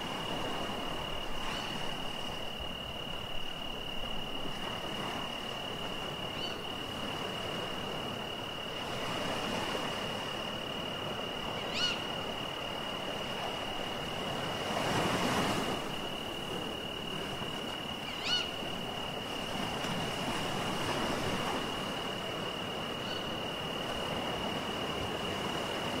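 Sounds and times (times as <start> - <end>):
surf washing in: 0.0 - 26.0.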